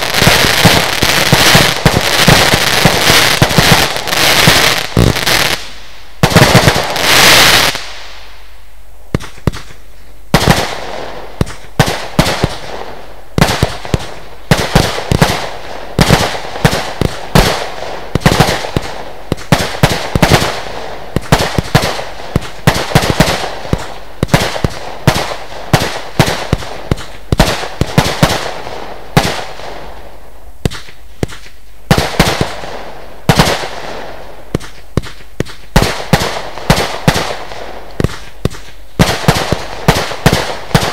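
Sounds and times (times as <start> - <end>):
fireworks firing sharp reports: 0.0 - 8.5, 9.1 - 40.9
loud hissing crackle: 0.0 - 31.9.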